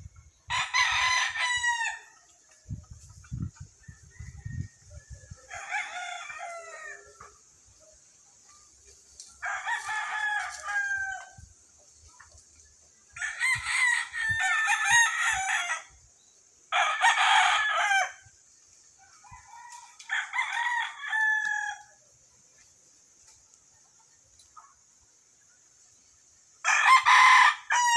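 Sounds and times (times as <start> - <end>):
roosters crowing: 0.4 - 2.4, 3.7 - 7.6, 9.2 - 11.5, 13.1 - 16.0, 16.6 - 22.0, 26.6 - 27.9.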